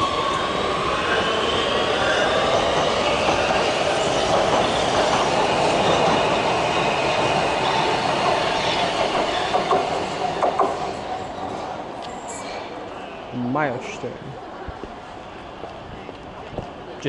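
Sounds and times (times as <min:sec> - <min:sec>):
train wheels rumbling on rail: 0:00.0 - 0:12.7.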